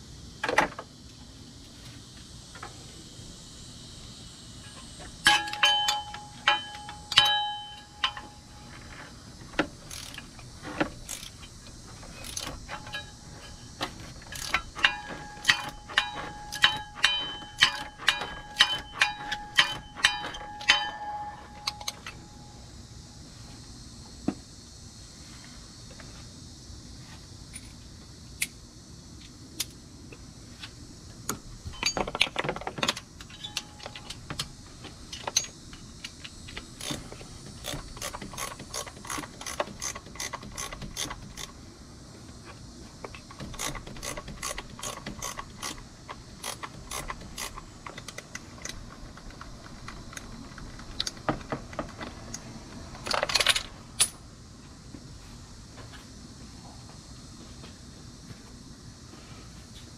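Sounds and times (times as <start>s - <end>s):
hand ratchet clicking: 9.8s - 10.4s, 11.0s - 13.1s, 14.2s - 20.9s, 35.2s - 41.5s, 43.3s - 48.8s
metal rattle: 9.8s - 22.1s.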